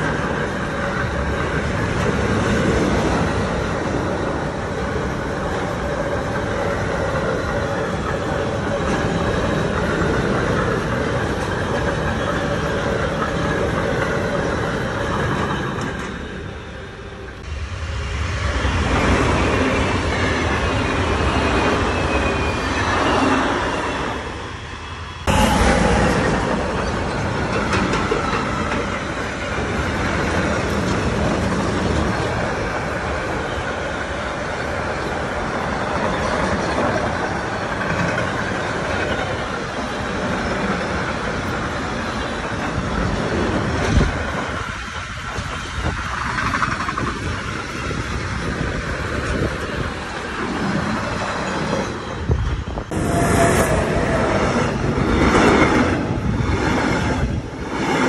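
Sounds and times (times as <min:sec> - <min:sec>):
freight train wheels rumbling: 0:00.0 - 0:58.0
passenger train wheel clatter: 0:00.0 - 0:58.0
short high train tone: 0:52.9 - 0:54.8.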